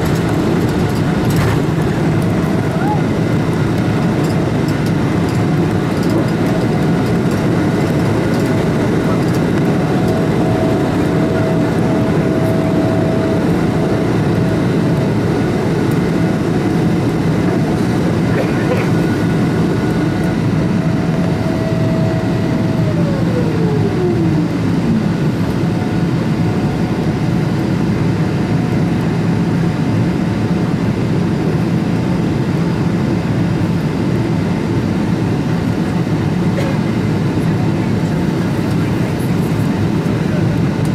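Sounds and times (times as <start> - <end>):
airplane cabin engine noise: 0.0 - 40.9
whine sliding down in pitch: 19.0 - 25.3.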